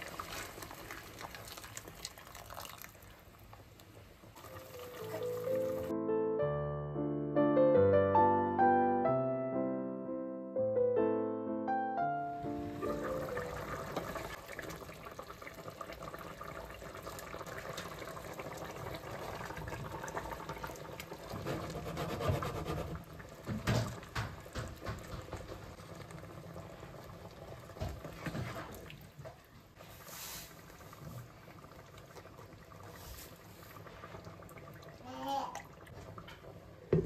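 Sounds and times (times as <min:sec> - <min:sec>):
liquid pouring into a pot: 0:00.0 - 0:03.8, 0:04.4 - 0:05.9, 0:13.1 - 0:21.5
rice splashing into a pot: 0:00.0 - 0:03.8.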